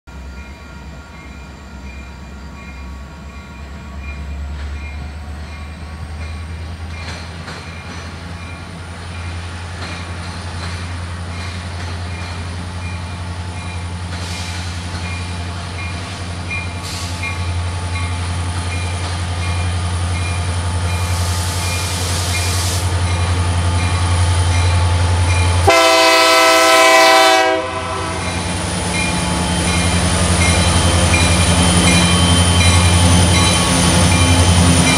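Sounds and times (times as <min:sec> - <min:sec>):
diesel locomotive engine rumble: 0:00.1 - 0:34.9
locomotive horn blast: 0:25.6 - 0:28.4.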